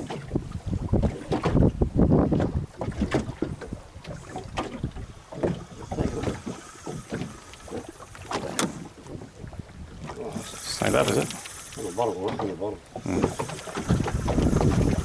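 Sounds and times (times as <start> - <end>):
knocks and splashes on hull: 0.0 - 15.0
wind buffeting the microphone: 0.0 - 15.0
sharp click: 11.0 - 11.9.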